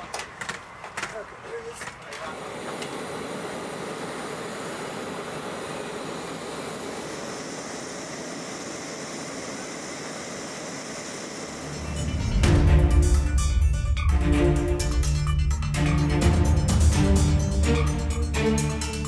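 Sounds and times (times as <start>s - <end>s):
jet engine rushing: 0.7s - 19.0s
music with deep drum hits: 12.2s - 18.6s.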